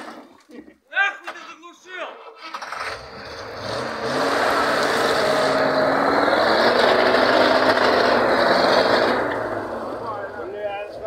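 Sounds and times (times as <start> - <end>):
truck engine working under load: 2.6 - 11.0.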